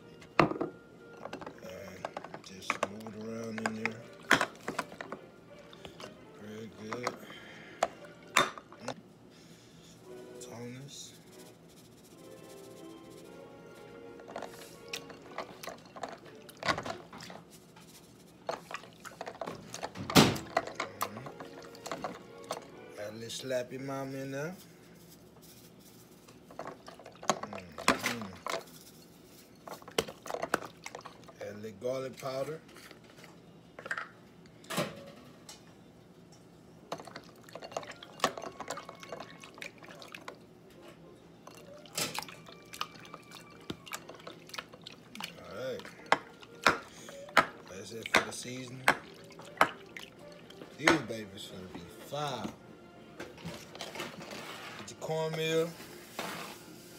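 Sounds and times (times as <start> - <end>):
wet squelches of fish mixing: 41.6 - 46.6, 48.0 - 50.6.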